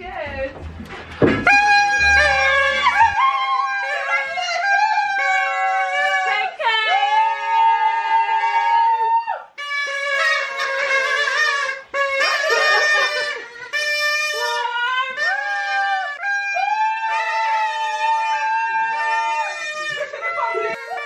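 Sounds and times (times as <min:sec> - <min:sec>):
saxophone-like wind instrument: 0:00.0 - 0:06.6, 0:09.6 - 0:21.0.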